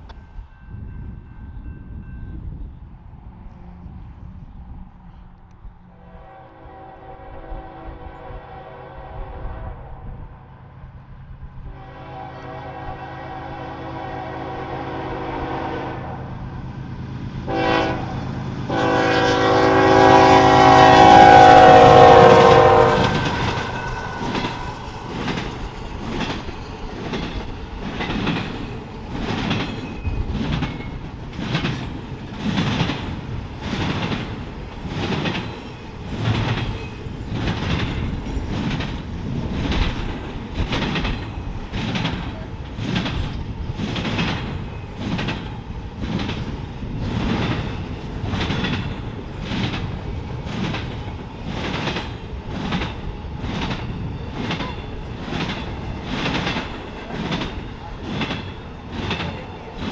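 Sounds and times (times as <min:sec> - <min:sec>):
locomotive air horn blasts: 0:05.9 - 0:10.2, 0:11.7 - 0:16.3, 0:17.5 - 0:24.3
train wheels clacking on rails: 0:17.5 - 0:59.9.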